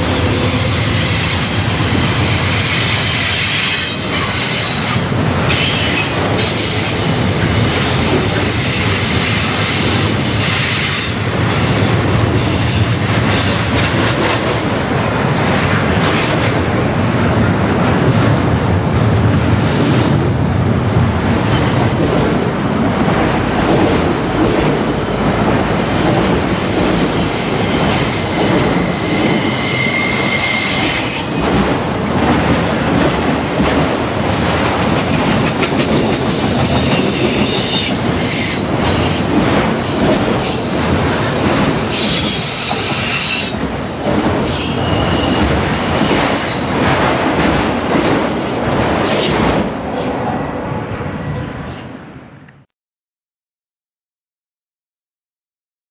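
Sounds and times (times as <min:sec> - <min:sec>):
train wheels rumbling on rail: 0:00.0 - 0:52.2
high-pitched wheel squeal: 0:25.2 - 0:31.4, 0:40.6 - 0:43.6, 0:44.4 - 0:46.4.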